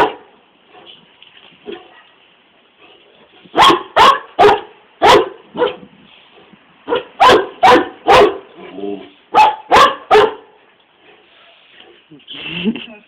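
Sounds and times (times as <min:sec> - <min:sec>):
dog barking: 0:00.0 - 0:00.9, 0:03.5 - 0:05.8, 0:06.8 - 0:08.5, 0:09.3 - 0:10.6.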